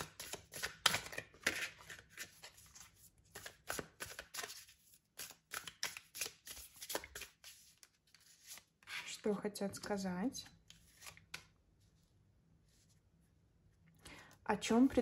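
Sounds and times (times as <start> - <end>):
cards being shuffled: 0.0 - 9.1, 10.5 - 11.6.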